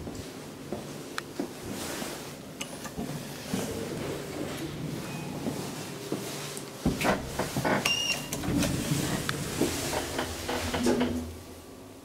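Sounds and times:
elevator doors sliding: 0:06.8 - 0:11.7.

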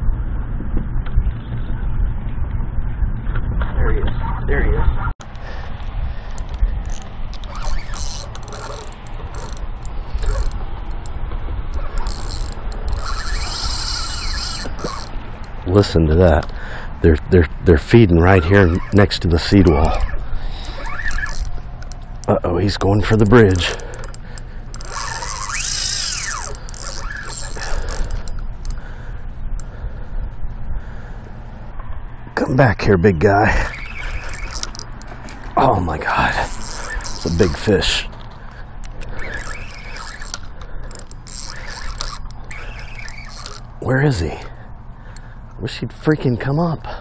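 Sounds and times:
steady low rumble: 0:00.0 - 0:20.8, 0:21.4 - 0:47.0
fishing reel ratcheting clicks: 0:06.3 - 0:16.6, 0:18.9 - 0:28.9, 0:33.8 - 0:35.4, 0:36.2 - 0:44.4.

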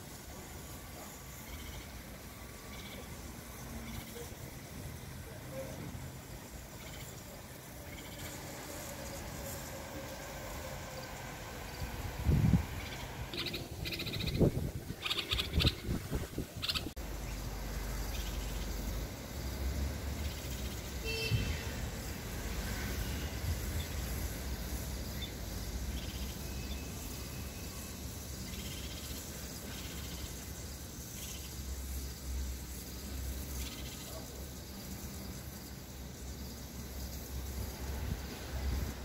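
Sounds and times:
bird calling: 0:12.8 - 0:16.0, 0:16.6 - 0:17.3.

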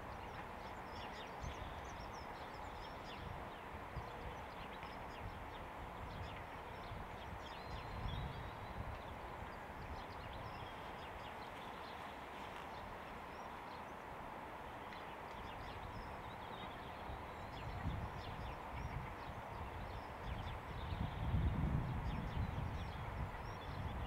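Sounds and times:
small birds chirping: 0:00.0 - 0:14.1, 0:14.8 - 0:24.0
wind rumble on microphone: 0:00.0 - 0:24.0.

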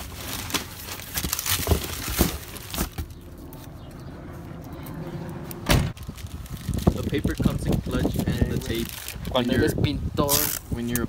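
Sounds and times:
paper rustling: 0:00.0 - 0:03.1.

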